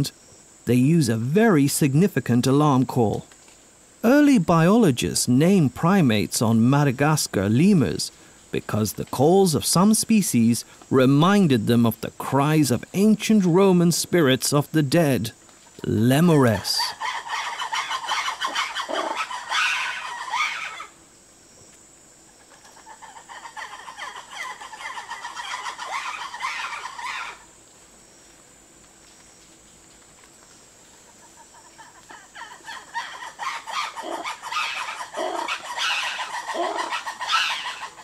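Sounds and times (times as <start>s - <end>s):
lemurs cackling: 15.7s - 21.0s, 22.4s - 27.5s, 31.0s - 38.0s.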